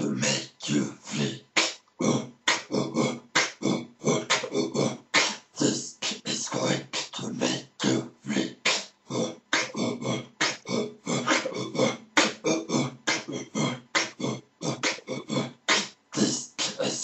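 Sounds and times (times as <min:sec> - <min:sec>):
man beatboxing: 0:00.0 - 0:17.0.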